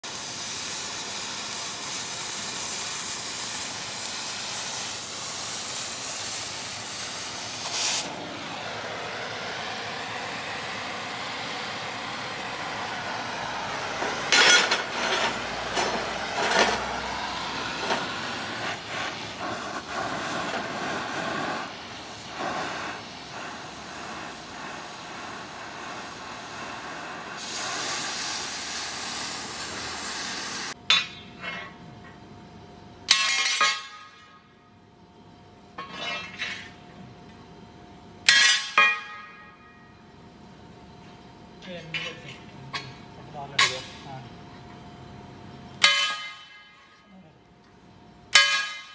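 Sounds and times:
cutting torch hissing: 0.0 - 30.8
sharp torch bursts: 0.0 - 30.8.

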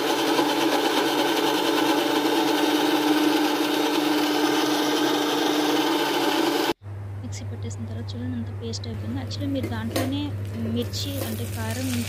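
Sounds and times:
mixer grinder motor humming: 0.0 - 6.8.

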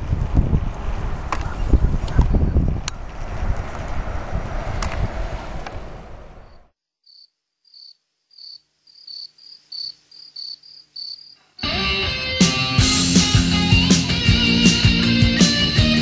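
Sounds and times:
wind: 0.0 - 11.6
cricket chirping: 6.4 - 11.6
rock song with electric guitars: 11.6 - 16.0.

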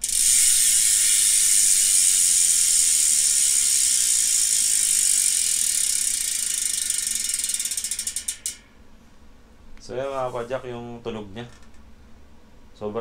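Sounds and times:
bicycle freehub ratcheting: 0.0 - 8.8.

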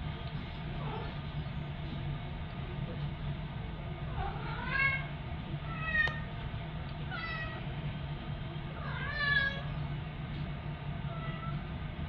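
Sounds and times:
cat meowing: 4.2 - 5.1, 5.7 - 6.3, 7.1 - 7.6, 8.8 - 9.7, 11.1 - 11.6.

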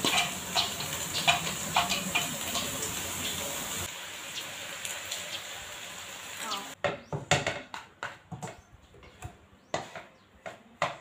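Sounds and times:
clicks and pops in a wok: 0.0 - 2.9
steady hiss: 0.0 - 6.8.

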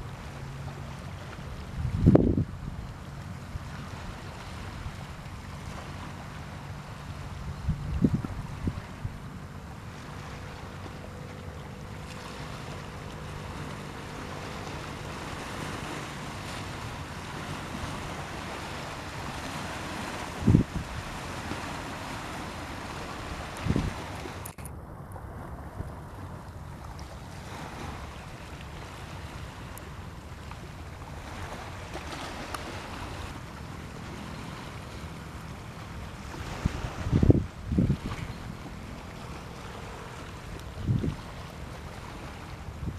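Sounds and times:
low steady hum: 0.0 - 42.9
sea wash: 0.0 - 42.9
wind buffeting microphone: 1.4 - 6.2, 6.8 - 11.2, 11.9 - 28.5, 34.0 - 42.9
wind buffeting thumps: 1.7 - 2.7, 7.5 - 9.2, 20.4 - 21.0, 36.6 - 38.4.

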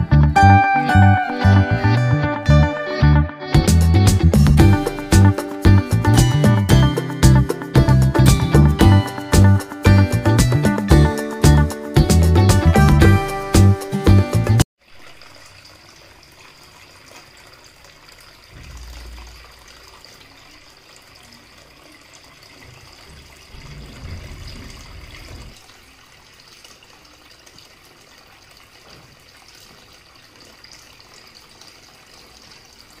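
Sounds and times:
water trickling into fountain basin: 4.7 - 12.5, 14.3 - 33.0
low rumbles: 23.1 - 25.6.

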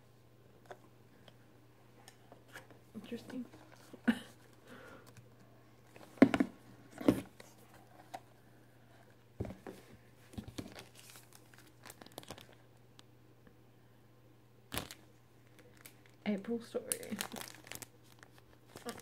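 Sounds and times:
plastic packaging crinkling: 10.4 - 12.7, 14.7 - 16.2, 16.8 - 19.0.

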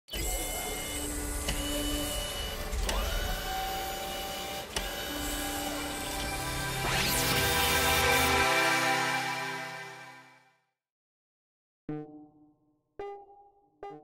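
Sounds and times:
small motors whirring: 0.1 - 8.8.

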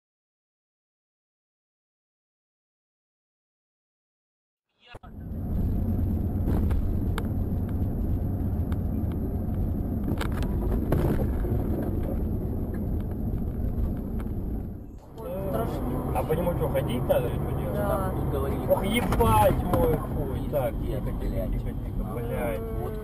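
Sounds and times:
car road and engine rumble: 4.9 - 23.0.

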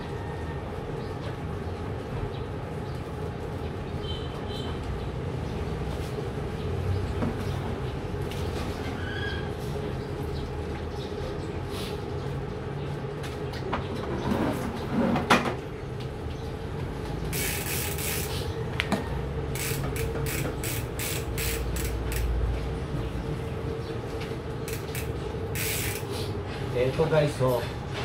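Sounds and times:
scrubbing bike chain: 17.3 - 18.5, 19.6 - 22.3, 24.7 - 26.2.

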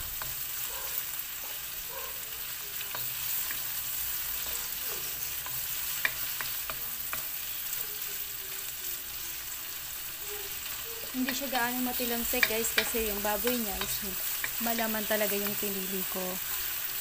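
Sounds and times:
meat sizzling in oil: 0.0 - 17.0
spatula knocking against pan: 12.2 - 14.6.

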